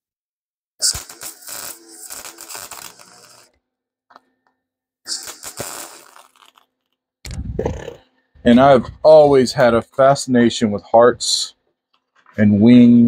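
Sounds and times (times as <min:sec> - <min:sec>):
welding arc crackling: 0:00.8 - 0:03.6, 0:05.1 - 0:06.7.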